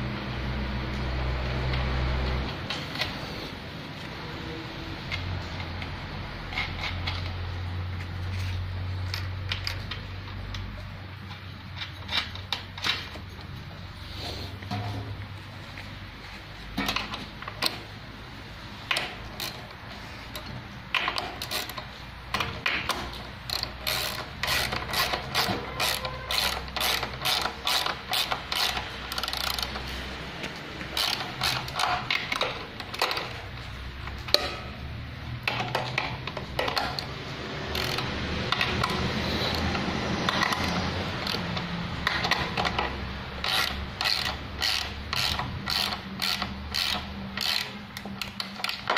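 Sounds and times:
ratcheting wrench clicking: 5.1s - 13.2s, 18.8s - 30.2s, 30.8s - 34.7s, 35.4s - 48.9s.

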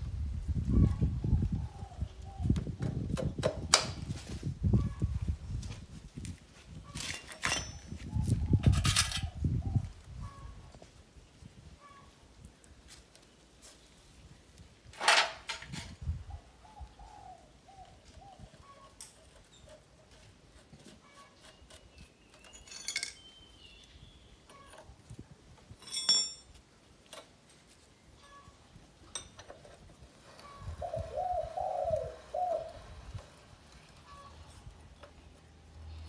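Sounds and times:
wrench clinking on metal parts: 7.0s - 8.0s, 8.6s - 9.3s, 22.3s - 23.5s, 24.4s - 25.0s, 25.6s - 27.3s, 29.0s - 29.8s.

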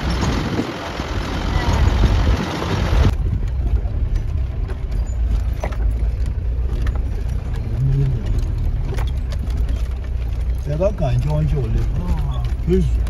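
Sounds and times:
car engine and road rumble: 0.0s - 13.0s
faint clicks and rattles: 3.1s - 13.0s.

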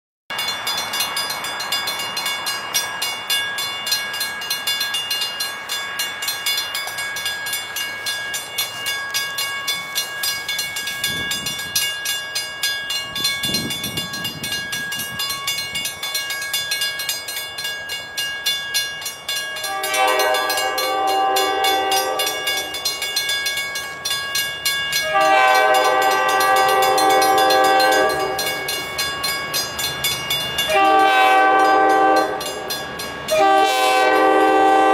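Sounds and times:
railroad crossing bell ringing: 0.3s - 34.9s
locomotive horn blasts: 19.6s - 22.9s, 25.0s - 28.6s, 30.7s - 32.7s, 33.3s - 34.9s.

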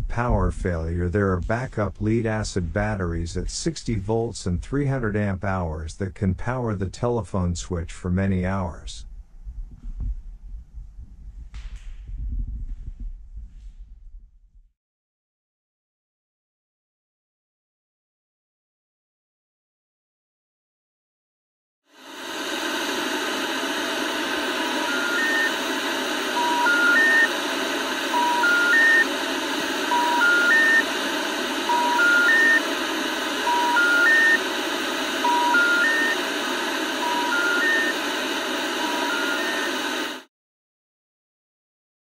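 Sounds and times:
static hiss: 22.0s - 40.3s
telephone three-tone beeps: 24.9s - 25.5s, 26.4s - 27.3s, 28.1s - 29.1s, 29.9s - 30.8s, 31.7s - 32.7s, 33.4s - 34.4s, 35.2s - 36.2s, 37.0s - 38.0s, 38.8s - 39.8s.

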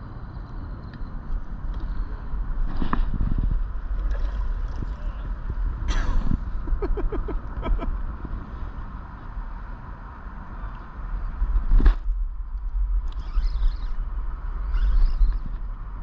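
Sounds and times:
low outdoor rumble: 0.0s - 16.0s.

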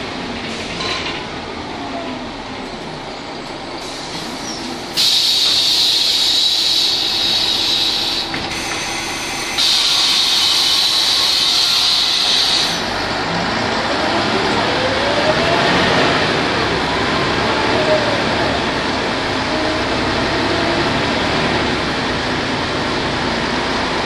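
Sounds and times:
bus diesel engine running: 0.0s - 24.0s
loud steady air hiss: 4.9s - 12.9s.

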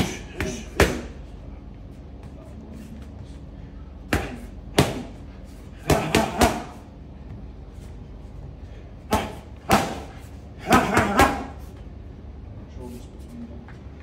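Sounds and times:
punches smacking focus mitts: 5.8s - 6.8s.

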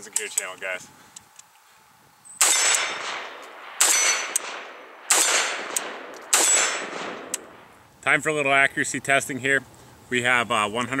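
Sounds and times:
rifle shots with echo: 2.4s - 7.7s.

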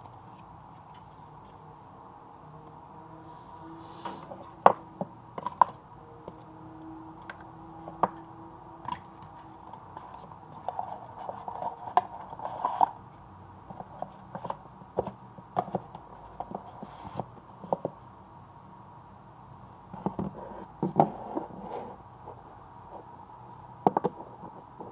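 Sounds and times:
cardboard box lid sliding off: 3.7s - 4.5s.

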